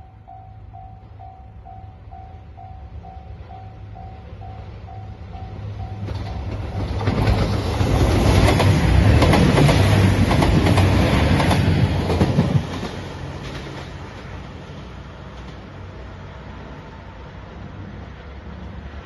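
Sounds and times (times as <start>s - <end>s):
train passing rumble: 0.0s - 19.0s
wheels clacking over rail joints: 5.8s - 14.4s.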